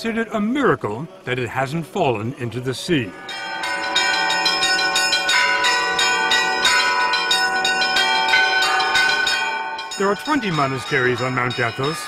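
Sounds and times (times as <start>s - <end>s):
bells ringing in a rhythmic peal: 2.9s - 12.0s.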